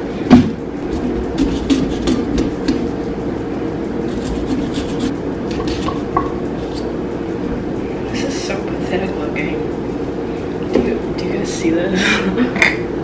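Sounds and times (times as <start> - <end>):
saw rasping through pumpkin: 4.1 - 5.9.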